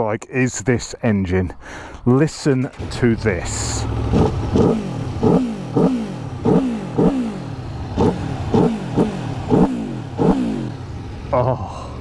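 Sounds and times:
motorcycle engine revving: 2.7 - 11.5.

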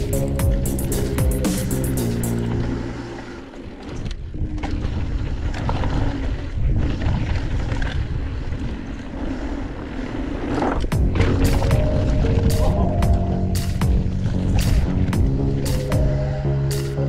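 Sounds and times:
background music: 0.0 - 3.5, 11.0 - 17.0
wind on microphone: 2.3 - 17.0
bike tyres rolling on dirt: 3.6 - 12.6.

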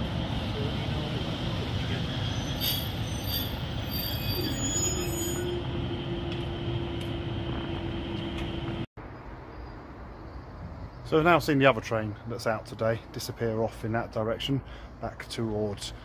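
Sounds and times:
diesel train engine pulling away: 0.0 - 8.9
steady train whine: 0.0 - 8.9
wheels squealing on rails: 1.0 - 7.0.

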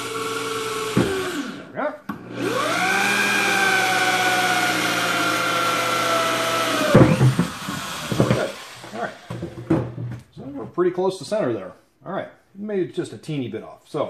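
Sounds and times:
electric drill cutting plastic: 0.0 - 9.6
loud knock: 6.8 - 8.6.

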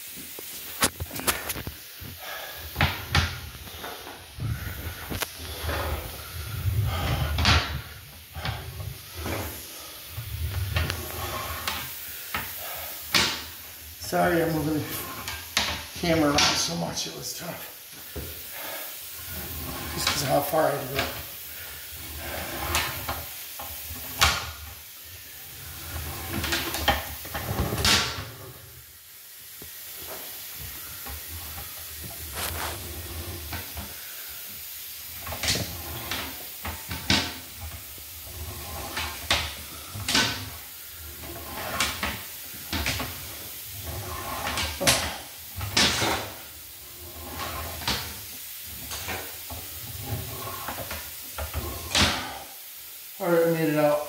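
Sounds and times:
clunks and scrapes of handling gear: 0.3 - 9.6, 22.0 - 24.6, 25.7 - 28.6, 30.0 - 33.9, 35.1 - 52.4.

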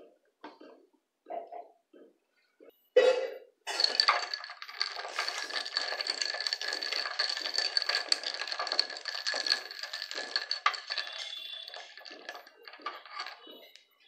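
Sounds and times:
spoon stirring ice in glass: 3.7 - 13.8.

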